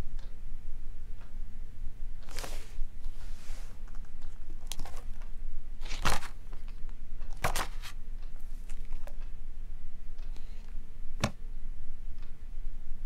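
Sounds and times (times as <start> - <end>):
book pages turning: 2.2 - 5.2, 5.8 - 8.0.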